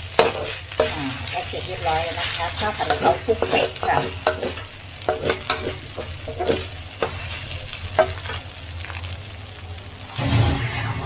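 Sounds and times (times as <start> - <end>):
spatula scraping a pan: 0.0 - 8.4
food sizzling in a pan: 0.0 - 11.0.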